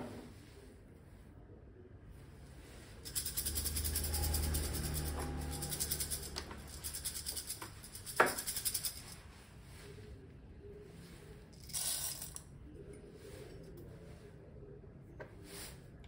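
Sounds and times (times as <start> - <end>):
ground coffee rattling in cup: 3.1 - 9.2.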